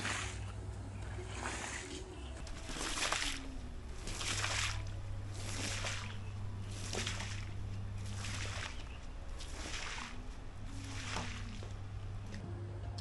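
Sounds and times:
squeegee swishing across wet rug: 0.0s - 12.4s
steady low hum: 0.0s - 13.0s.

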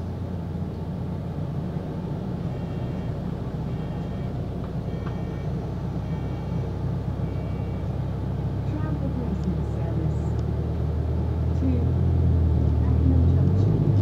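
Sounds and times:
bus engine rumble: 0.0s - 14.0s
short high beeps: 2.5s - 6.6s, 7.2s - 7.9s.

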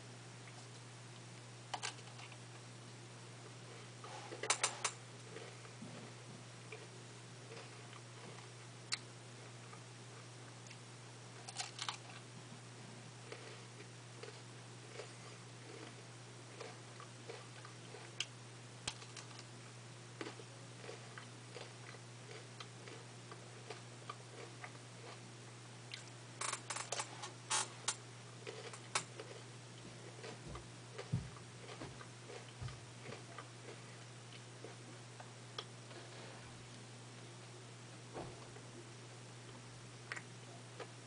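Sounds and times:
steady low hum: 0.0s - 41.0s
ice cream cone crunching: 11.4s - 12.2s.

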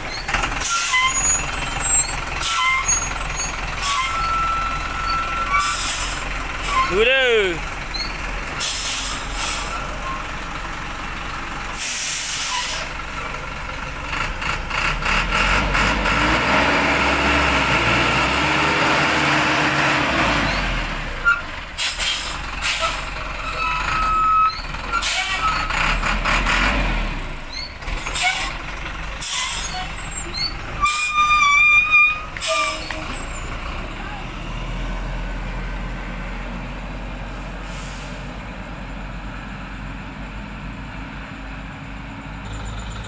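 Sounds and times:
truck diesel engine: 0.0s - 43.0s
air brake hisses: 8.6s - 9.8s, 11.8s - 12.9s, 21.8s - 23.1s, 37.4s - 38.4s.

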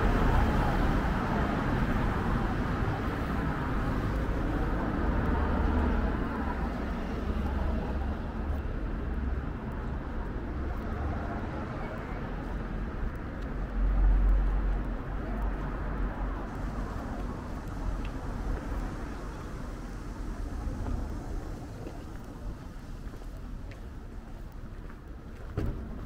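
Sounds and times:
road traffic rumble: 0.0s - 26.0s.

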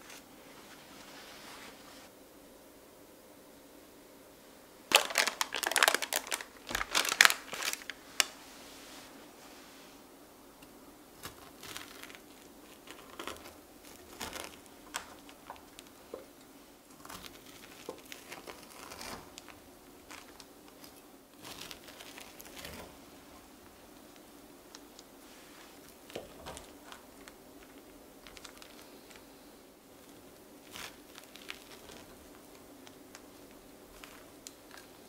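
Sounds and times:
parchment paper crinkling: 4.9s - 8.5s, 11.2s - 35.0s.

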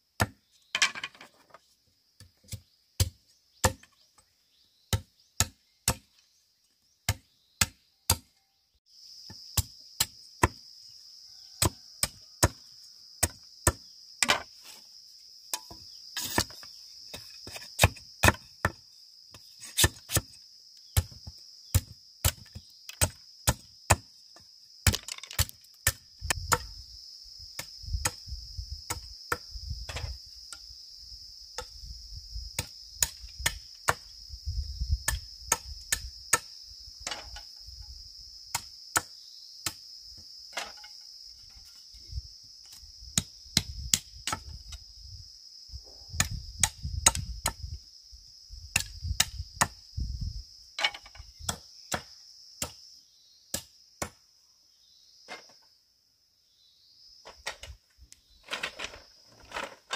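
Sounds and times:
chopping blows on bamboo: 0.2s - 0.4s, 2.4s - 4.0s, 4.9s - 6.1s, 7.0s - 8.3s, 9.3s - 10.6s, 11.6s - 12.6s, 32.6s - 34.1s, 48.7s - 49.8s, 50.8s - 52.8s
high insect buzz: 8.9s - 59.9s.

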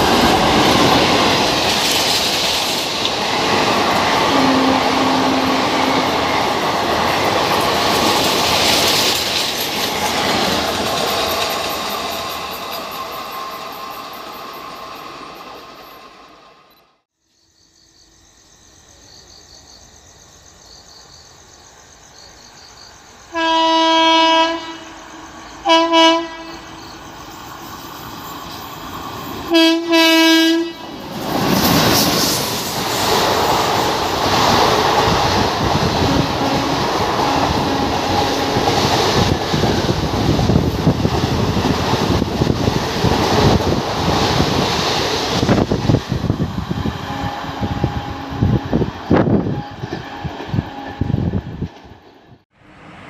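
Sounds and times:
train coaches rushing past: 0.0s - 16.9s, 20.9s - 53.0s
locomotive horn blasts: 4.2s - 6.4s, 23.3s - 26.8s, 29.5s - 30.9s, 35.9s - 38.8s, 47.0s - 51.4s.

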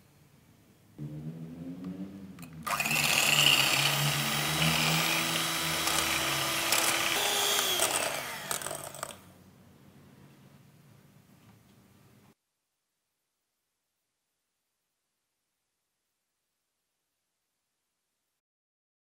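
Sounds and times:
electric hand mixer whipping cream: 2.7s - 9.2s.

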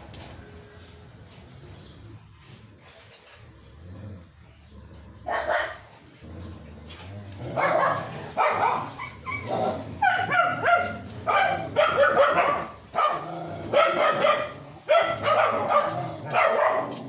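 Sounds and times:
puppy crying: 8.4s - 10.9s.

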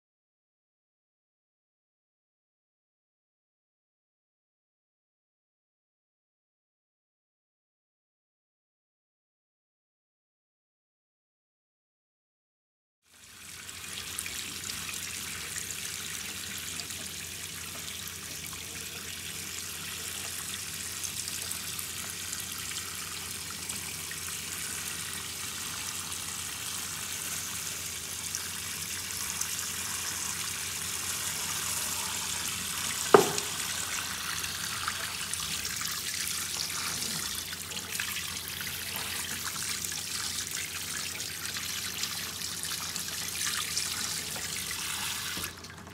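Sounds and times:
water spraying into steel sink: 29.2s - 34.7s
sharp knock: 33.1s - 33.6s.

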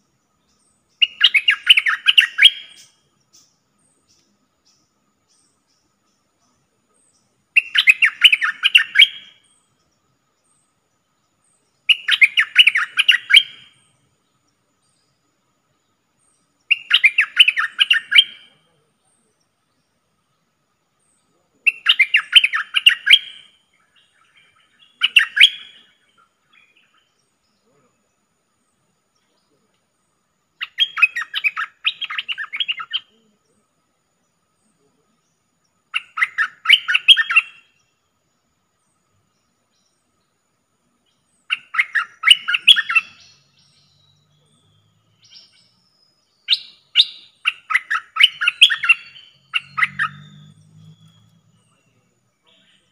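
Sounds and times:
bulbul chattering calls: 0.6s - 5.6s, 7.0s - 9.8s, 11.8s - 14.1s, 16.4s - 19.3s, 21.2s - 27.8s, 30.6s - 33.5s, 35.9s - 37.9s, 41.2s - 52.9s.

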